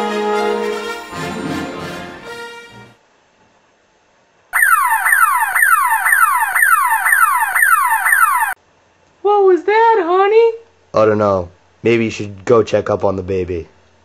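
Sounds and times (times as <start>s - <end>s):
electronic siren wailing: 4.6s - 8.6s.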